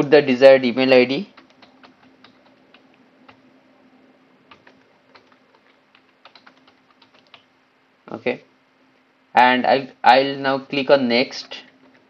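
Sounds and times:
faint steady hum: 0.0 - 12.0
keyboard typing: 1.3 - 3.5, 4.5 - 7.5.

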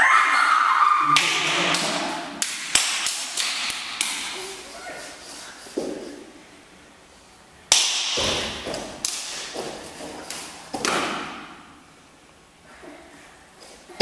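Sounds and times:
hand slaps and claps: 1.2 - 4.4, 7.7 - 11.5.

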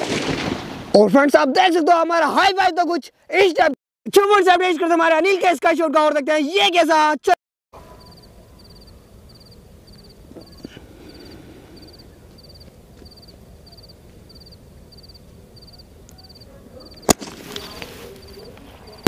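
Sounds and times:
firework bang: 0.0 - 1.0, 17.0 - 18.0
night insects chirping: 7.8 - 19.0.

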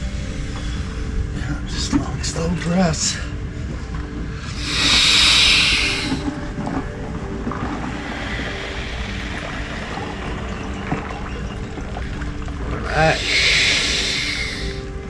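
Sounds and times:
steady low rumble: 0.0 - 15.0
man exhaling slowly: 4.5 - 6.3, 8.0 - 9.8, 13.2 - 14.9.

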